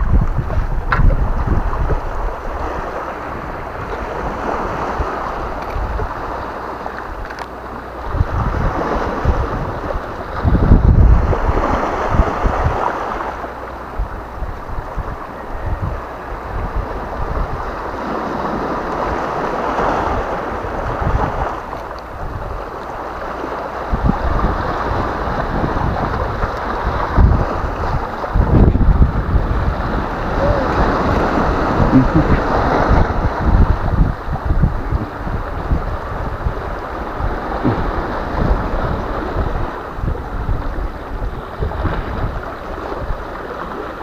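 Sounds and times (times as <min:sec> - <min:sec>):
wind buffeting microphone: 0:00.0 - 0:44.0
surf washing onto pebble shore: 0:16.9 - 0:44.0.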